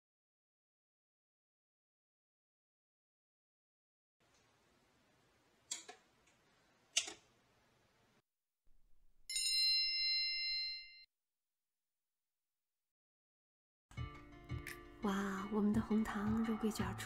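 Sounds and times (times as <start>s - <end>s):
sharp clicks: 5.7s - 7.2s
bell-like timer ding: 9.3s - 11.1s.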